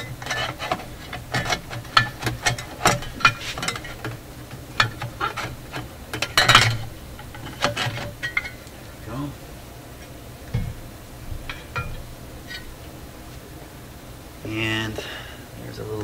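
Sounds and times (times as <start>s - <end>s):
metal cover plate clicks and scrapes: 0.0s - 8.7s, 11.5s - 12.8s.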